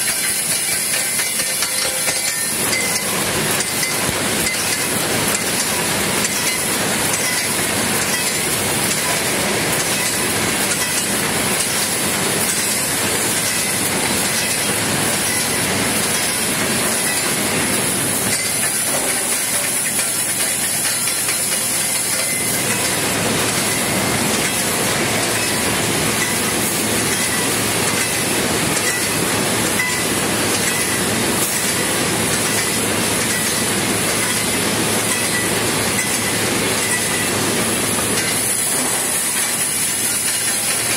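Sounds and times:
welding machine running: 0.0s - 40.9s.

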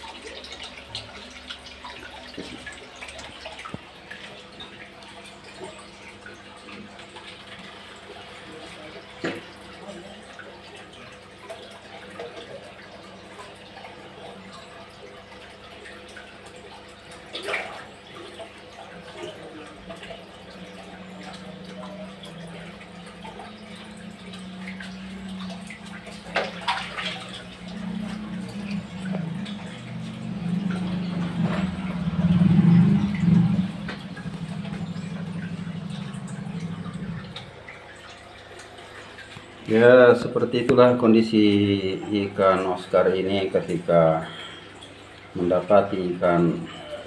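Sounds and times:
water sloshing and dripping: 0.0s - 47.0s
steady low hum: 12.6s - 47.0s
sharp water splashes: 15.1s - 18.9s, 19.8s - 39.8s
low rumble: 28.6s - 37.7s.

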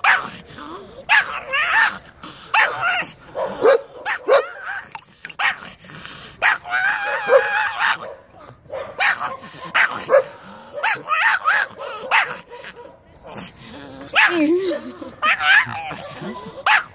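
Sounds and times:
small dog barking and whining: 1.1s - 4.8s, 6.4s - 12.9s, 14.1s - 14.5s, 15.2s - 16.9s.

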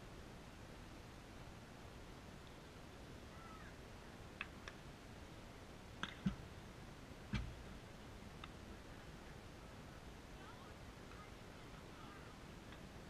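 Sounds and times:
dull thumps near microphone: 6.0s - 6.5s, 7.3s - 7.7s.

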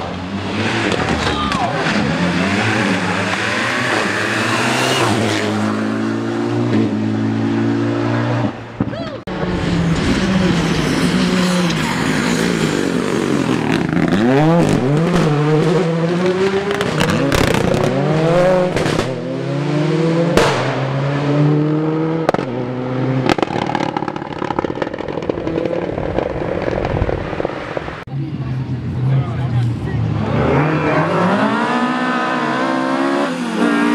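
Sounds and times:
rally car engine at full throttle: 0.0s - 33.9s
exhaust cracks: 22.2s - 28.1s.

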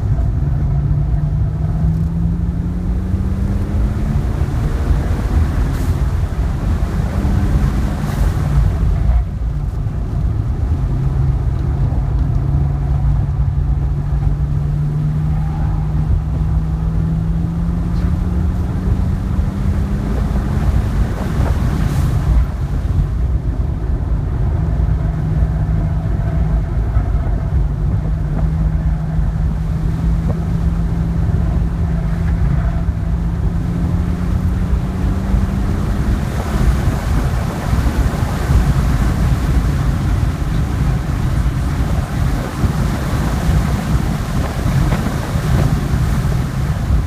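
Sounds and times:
car engine drone: 0.0s - 47.0s
wind and road rush: 0.0s - 47.0s.

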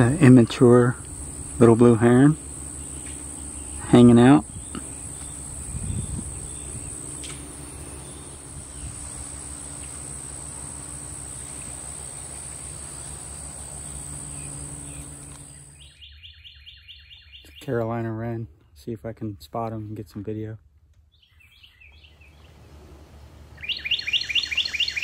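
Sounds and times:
outdoor ambience: 0.0s - 25.0s
high-pitched insect buzzing: 1.0s - 15.9s
evenly spaced chirps: 23.6s - 25.0s.

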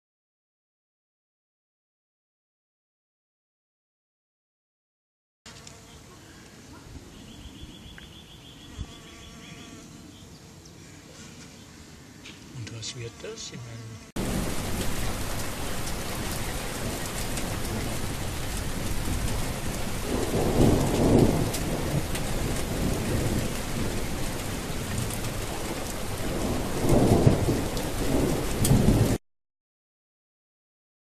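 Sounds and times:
heavy rain: 14.2s - 29.2s
low roll of thunder: 14.2s - 29.2s.

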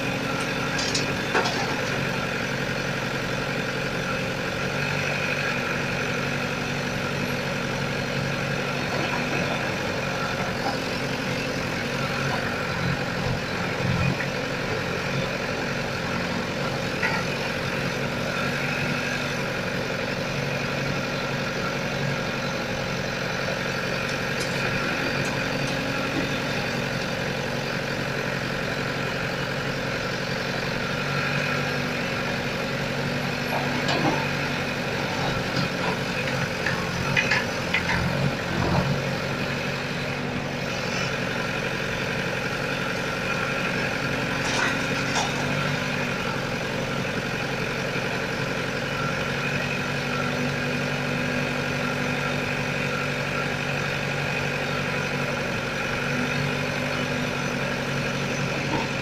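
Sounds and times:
diesel engine running: 0.0s - 59.0s.

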